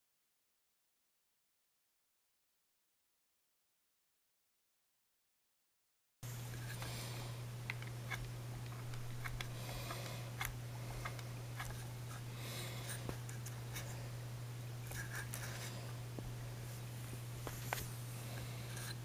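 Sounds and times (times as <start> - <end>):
steady low hum: 6.2 - 19.0.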